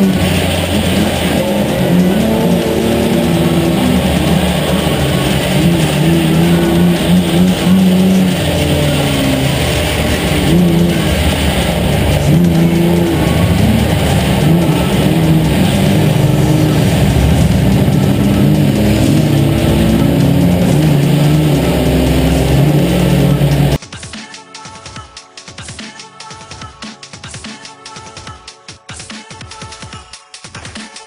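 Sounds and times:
other car engines: 0.0 - 23.8
race car engine revving: 0.0 - 23.8.

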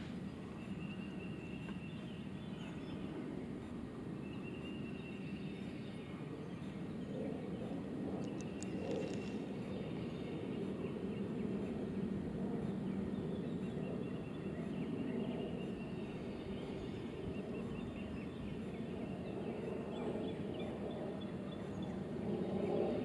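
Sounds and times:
birds calling: 0.0 - 11.9
low outdoor rumble: 0.0 - 23.0.

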